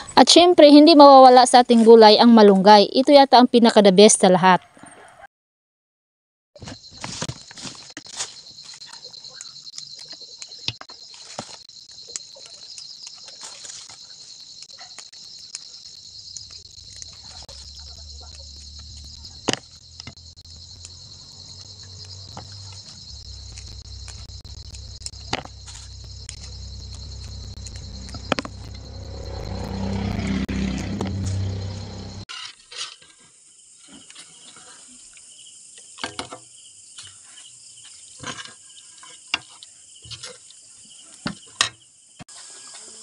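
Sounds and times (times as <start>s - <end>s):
crickets trilling: 6.6s - 32.3s, 33.3s - 43.0s
vegetable stems snapping: 14.6s - 29.7s
low hum: 16.3s - 32.3s.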